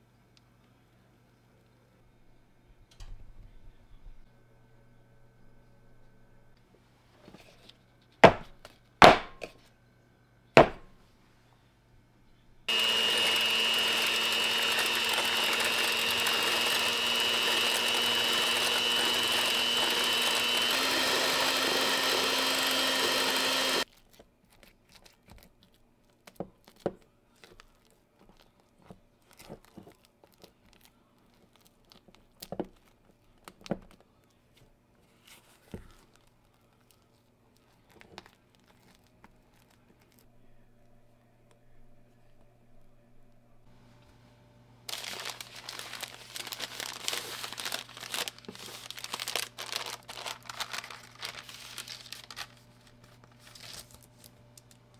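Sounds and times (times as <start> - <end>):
electric hand mixer whipping cream: 12.7 - 23.8.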